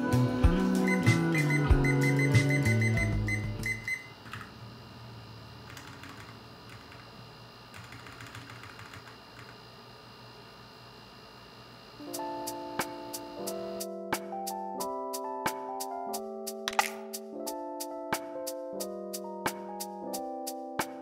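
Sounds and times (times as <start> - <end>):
background music: 0.0 - 3.9, 12.0 - 21.0.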